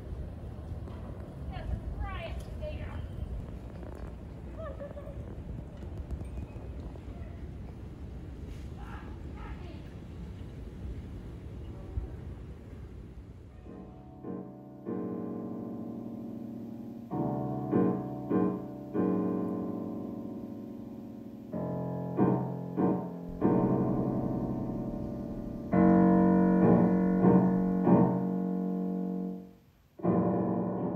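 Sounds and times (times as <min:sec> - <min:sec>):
single piano notes: 0:13.6 - 0:30.9
piano chords: 0:13.7 - 0:30.9.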